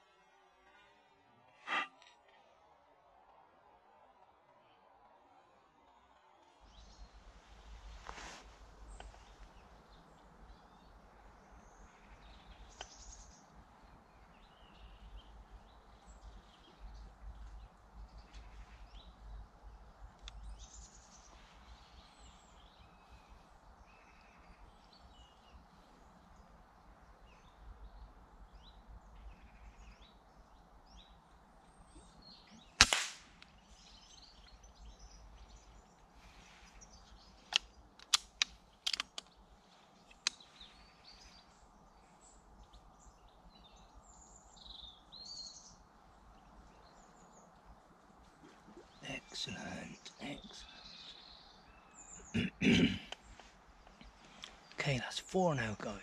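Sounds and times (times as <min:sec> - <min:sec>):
faint birdsong: 0:00.0 - 0:56.0
air rifle shot: 0:32.8 - 0:33.4
small sharp clicks: 0:37.4 - 0:39.4, 0:40.0 - 0:40.6.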